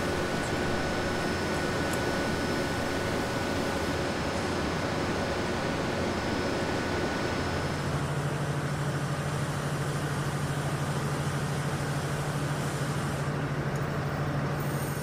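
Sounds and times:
machinery humming: 0.0 - 8.8.

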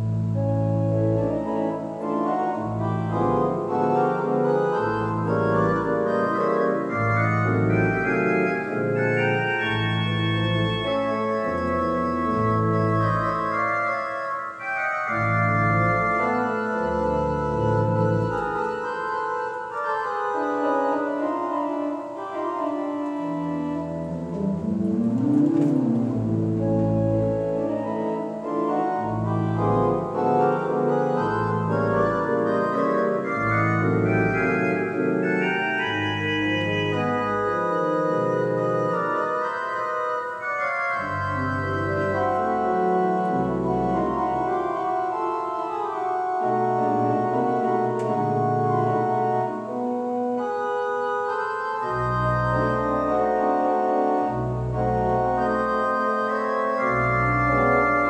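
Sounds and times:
pipe organ playing a tango: 0.0 - 58.0.

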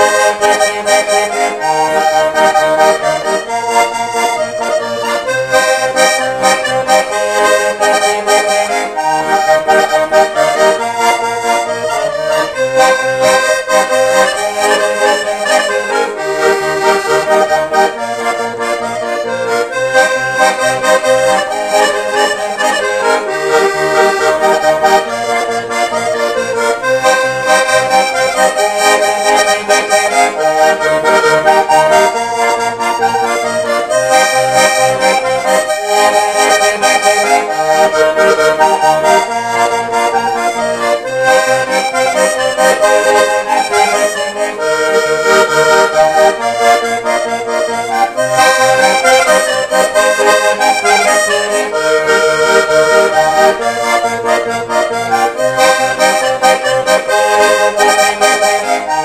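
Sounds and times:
button accordion dance tune: 0.0 - 59.0.

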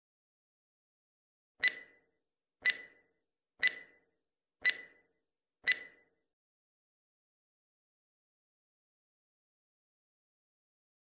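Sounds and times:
clock ticks with ringing note: 1.6 - 4.0, 4.6 - 6.1.

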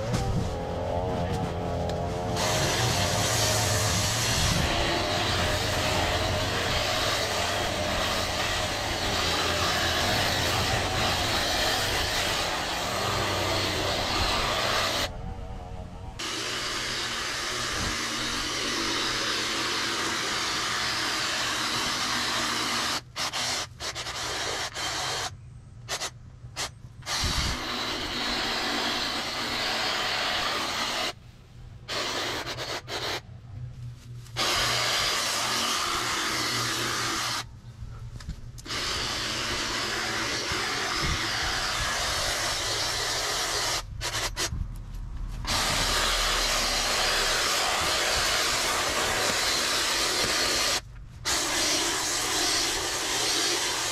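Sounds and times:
lawn power equipment motor: 0.0 - 15.1, 34.4 - 37.5.

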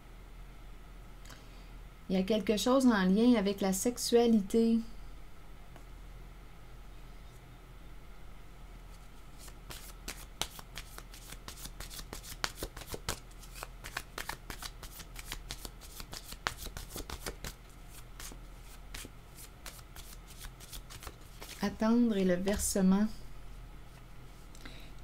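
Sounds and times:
cards being shuffled: 8.9 - 21.7.

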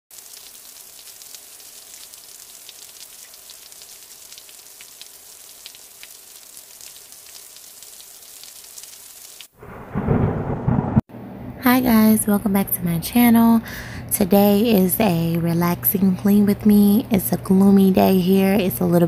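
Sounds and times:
steady rain falling: 0.1 - 11.0.

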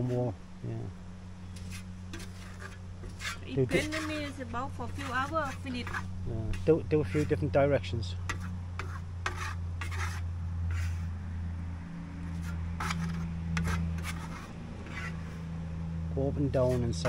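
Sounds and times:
steady low hum: 0.0 - 17.0
trowel scraping plaster: 1.6 - 7.5, 8.3 - 11.1, 12.3 - 15.5, 16.6 - 17.0.

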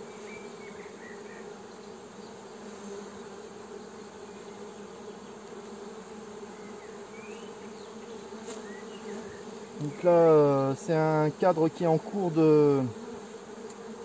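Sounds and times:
honeybees buzzing: 0.0 - 14.0.

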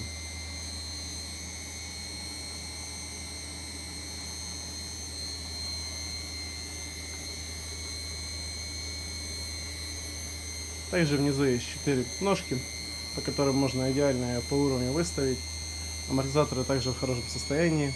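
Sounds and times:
high motor whistle: 0.0 - 17.9
washing machine spinning hum: 0.0 - 17.9.

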